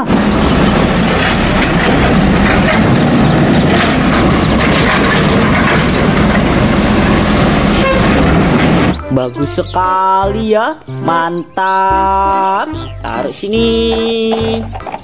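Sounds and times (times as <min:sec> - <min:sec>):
hydraulic arm lifting cart: 0:00.0 - 0:09.0
knocks and rattles of cart: 0:00.0 - 0:09.2, 0:13.2 - 0:15.0
diesel truck engine running: 0:00.0 - 0:10.6.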